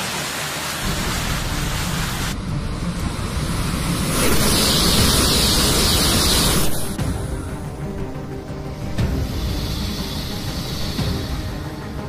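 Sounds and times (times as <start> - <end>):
loud rushing noise: 0.0 - 12.0.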